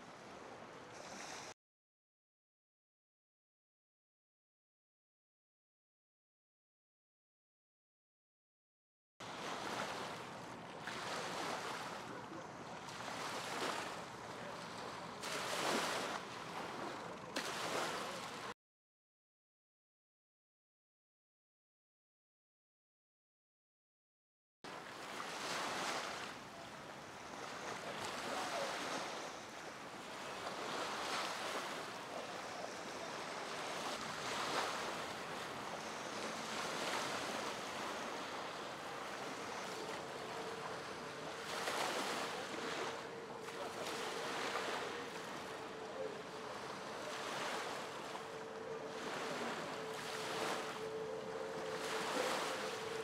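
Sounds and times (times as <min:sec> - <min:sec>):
choppy river water: 0:00.0 - 0:01.6, 0:09.2 - 0:18.6, 0:24.7 - 0:53.0.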